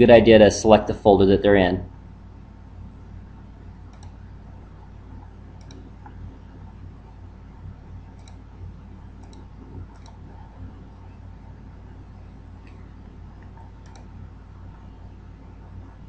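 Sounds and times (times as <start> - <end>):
steady low hum: 0.0 - 16.0
computer mouse clicking: 3.8 - 4.3, 5.1 - 6.3, 8.0 - 10.7, 12.6 - 14.2.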